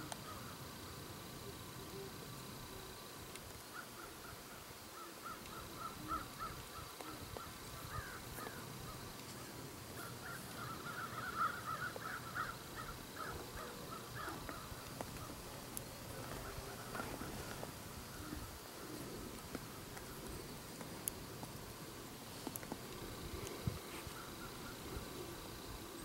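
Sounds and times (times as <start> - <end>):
faint outdoor background: 0.0 - 26.0
distant harsh bird calls: 3.7 - 20.7, 23.3 - 26.0.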